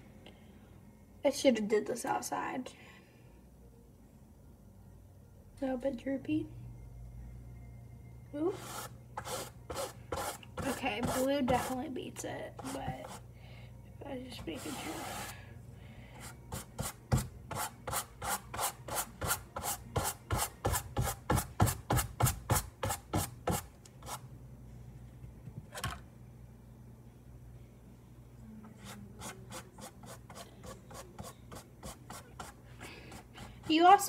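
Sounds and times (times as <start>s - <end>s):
paintbrush scratching on canvas: 8.6s - 11.8s, 14.6s - 15.3s.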